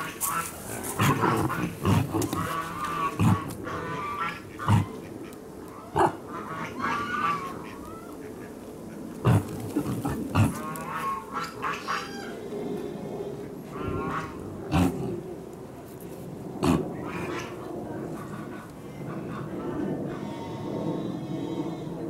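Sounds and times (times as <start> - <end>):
peccary grunting: 0.9 - 3.9, 4.6 - 5.0, 5.9 - 6.2, 9.2 - 10.8, 14.7 - 15.2, 16.6 - 17.0.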